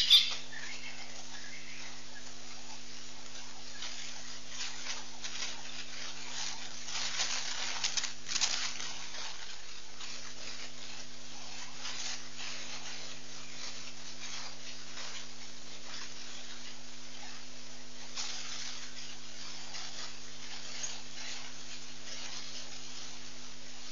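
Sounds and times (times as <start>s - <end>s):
microphone hiss and hum: 0.0s - 23.9s
scratchy bursts: 0.0s - 23.9s.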